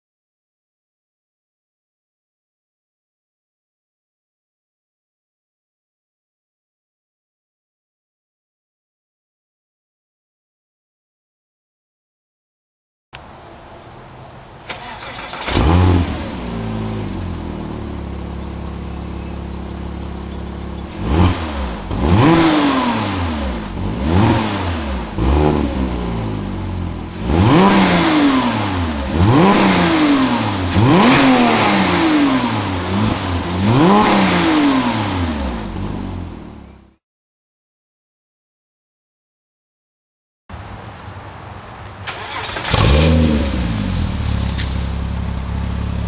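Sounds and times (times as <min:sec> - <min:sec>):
car engine idling and revving: 0:13.2 - 0:37.0, 0:42.1 - 0:46.0.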